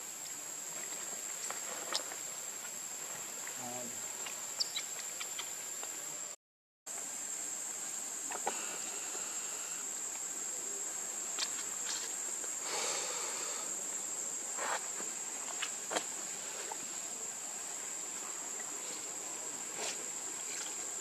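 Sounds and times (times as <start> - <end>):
high-pitched insect drone: 7.5 - 10.6.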